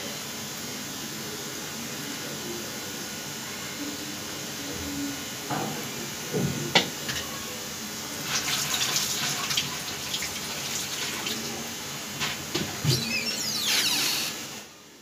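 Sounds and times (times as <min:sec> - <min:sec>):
food sizzling in hot oil: 0:05.2 - 0:14.6.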